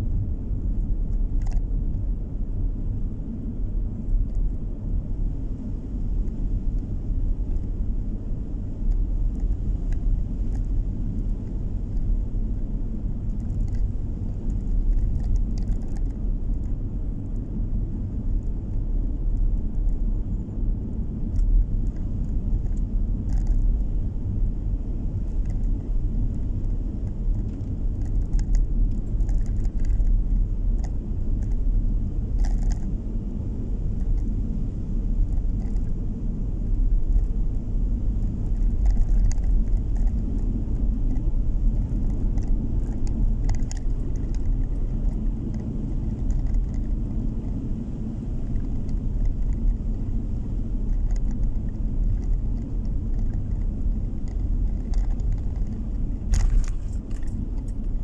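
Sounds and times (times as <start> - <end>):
car interior road rumble: 0.0 - 58.0
light clicks and rattles: 1.1 - 1.7, 8.8 - 12.2, 13.2 - 17.5, 21.2 - 23.9, 25.1 - 31.7, 32.3 - 33.0, 35.2 - 36.0, 36.6 - 47.7, 48.3 - 58.0.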